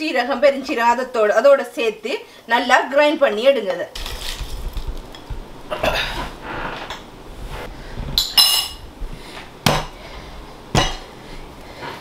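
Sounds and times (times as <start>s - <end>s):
glass clink: 8.2s - 8.8s.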